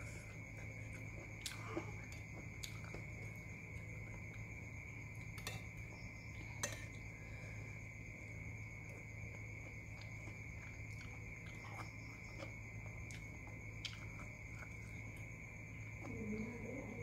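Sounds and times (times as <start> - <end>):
chewing and gnawing: 0.3 - 6.0, 8.8 - 16.2.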